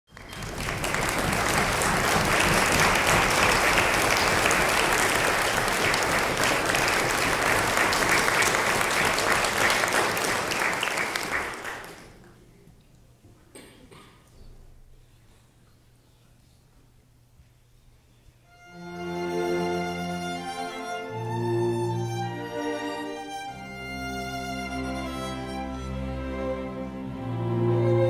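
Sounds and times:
audience applauding: 0.1s - 12.3s.

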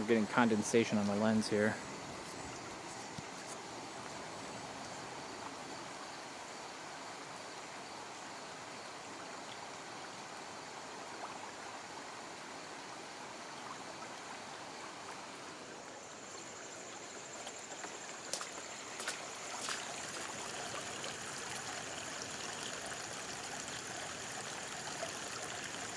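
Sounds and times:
rainwater streaming over pavement: 15.0s - 25.9s.

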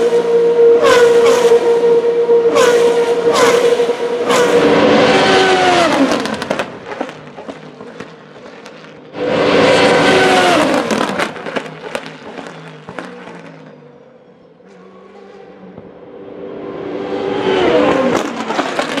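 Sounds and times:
race car passing at high revs: 0.0s - 8.1s, 9.1s - 13.8s, 14.7s - 19.0s
engine pops and crackles: 5.9s - 9.1s, 10.5s - 13.8s, 18.0s - 19.0s.

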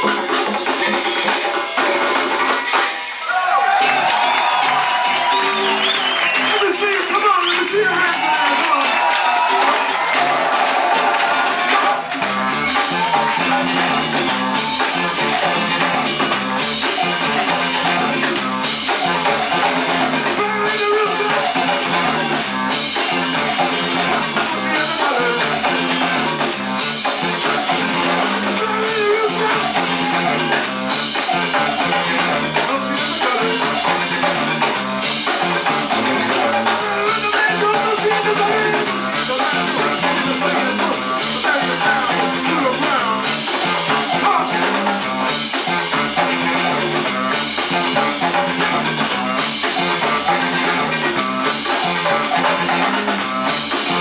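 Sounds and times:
drum kit: 0.0s - 54.0s
guitar: 0.0s - 54.0s
saxophone: 11.8s - 54.0s.

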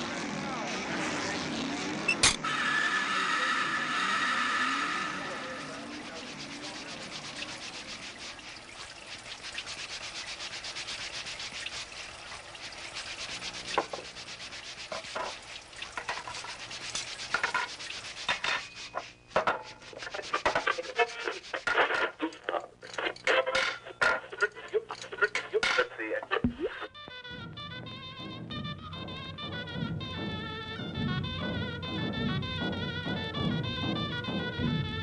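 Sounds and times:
dry rapid scratching: 0.0s - 26.9s.

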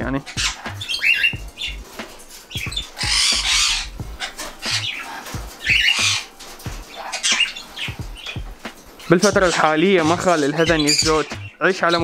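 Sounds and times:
parrots squawking: 0.0s - 12.0s.

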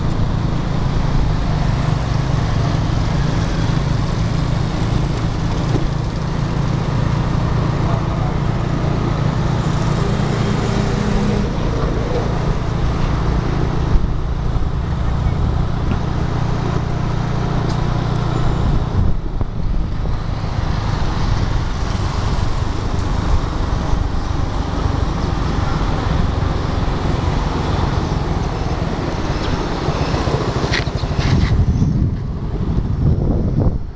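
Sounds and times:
engine running: 0.0s - 33.9s
traffic: 0.0s - 33.9s
wind rumble on microphone: 0.0s - 33.9s.

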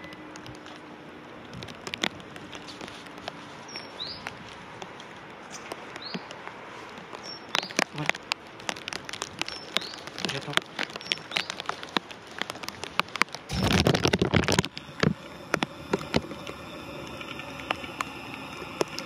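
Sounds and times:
light ticks and taps: 0.0s - 13.5s.

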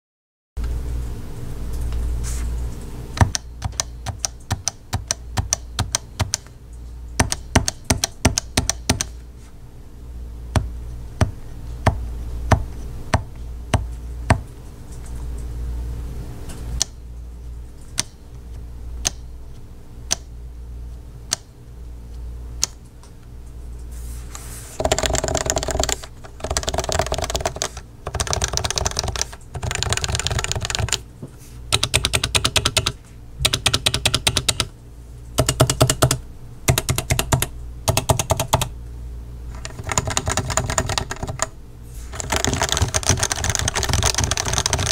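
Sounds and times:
keyboard keystrokes: 3.2s - 6.5s, 7.2s - 9.1s, 24.8s - 31.0s, 31.7s - 34.7s, 35.4s - 38.7s, 39.6s - 41.5s, 42.2s - 44.9s.

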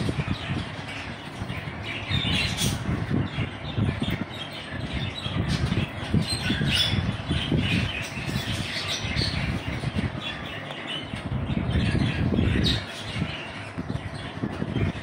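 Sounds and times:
budgerigars chirping and squawking: 0.0s - 15.0s.

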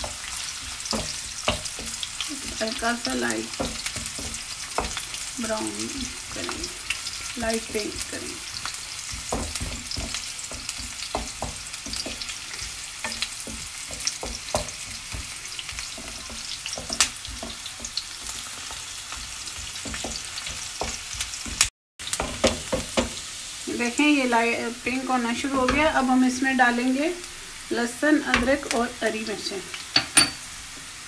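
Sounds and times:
wooden spatula scraping a pan: 0.0s - 23.3s
onions sizzling in hot oil: 0.0s - 31.0s.

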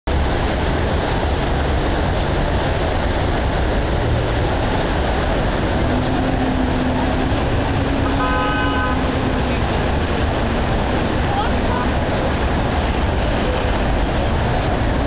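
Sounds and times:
traffic rumble: 0.0s - 15.0s
car horn honk: 8.0s - 9.1s.

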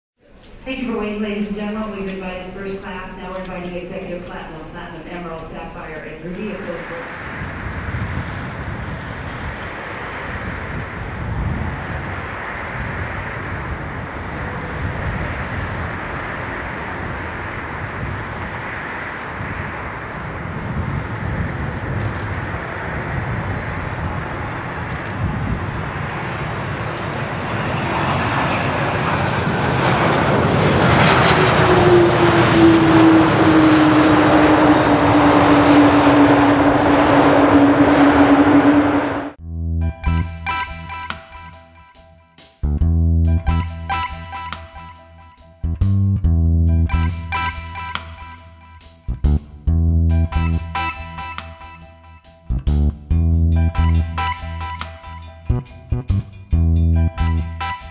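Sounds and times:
jet airliner landing: 0.3s - 39.4s, 50.3s - 51.9s
jet engine whine: 0.5s - 39.4s.

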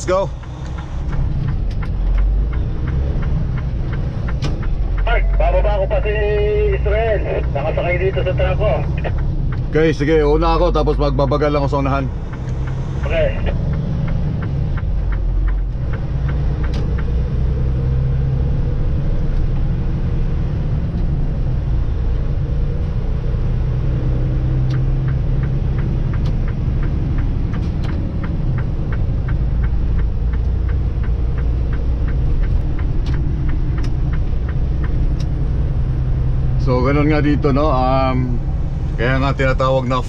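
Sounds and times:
truck engine rumble: 0.0s - 40.0s
quick regular ticking: 24.5s - 36.3s.

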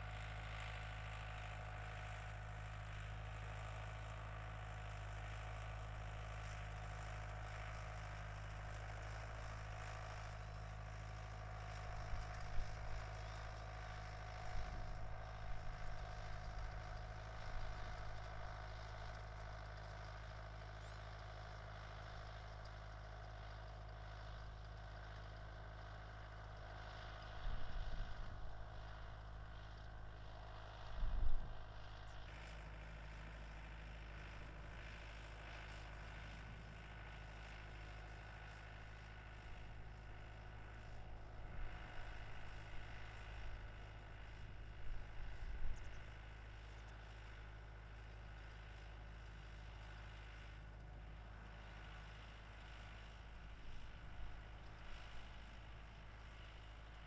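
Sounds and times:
low background hum: 11.7s - 22.8s, 23.4s - 57.0s.

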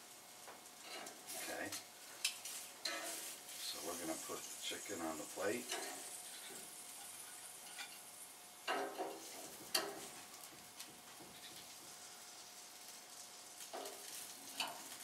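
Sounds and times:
chicken sizzling on a grill: 0.0s - 15.0s
tongs clicking and clinking: 5.7s - 8.1s, 13.7s - 14.8s.

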